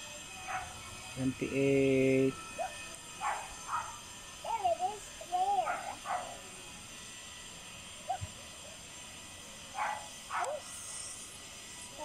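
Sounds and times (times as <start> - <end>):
dog barking: 0.5 - 0.8, 3.2 - 4.0, 5.6 - 6.4, 8.1 - 8.3, 9.8 - 10.6.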